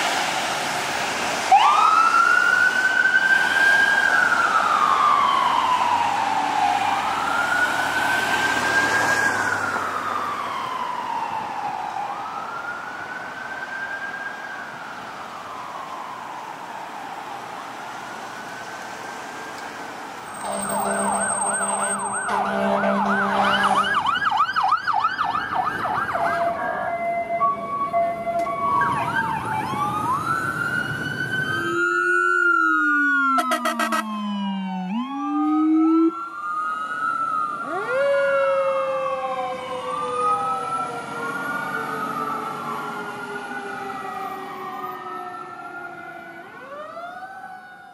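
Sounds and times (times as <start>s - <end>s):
traffic: 0.0s - 47.9s
wailing siren: 1.4s - 47.9s
two-tone siren: 1.5s - 16.8s, 20.2s - 47.9s
yelping siren: 1.5s - 17.3s, 20.2s - 47.9s
low siren tone: 20.2s - 47.9s.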